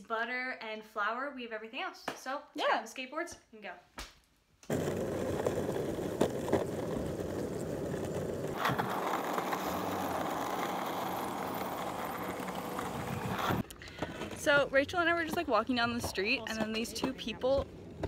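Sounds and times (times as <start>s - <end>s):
skateboard wheels rolling on asphalt: 4.7s - 18.0s.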